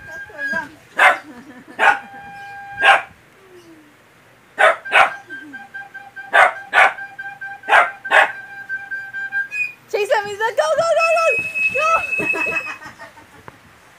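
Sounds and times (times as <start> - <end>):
small dog barking: 1.0 - 2.1, 2.8 - 3.1, 4.6 - 5.2, 6.3 - 7.0, 7.7 - 8.4
recorder steady note: 1.8 - 3.1.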